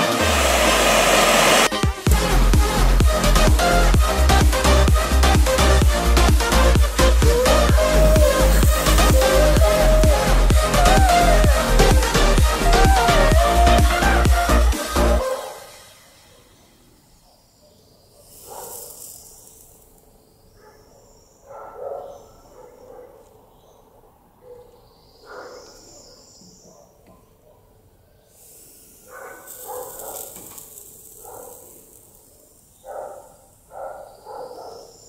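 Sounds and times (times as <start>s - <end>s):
hot metal sizzling in sponges: 0.0s - 1.8s, 28.3s - 33.7s.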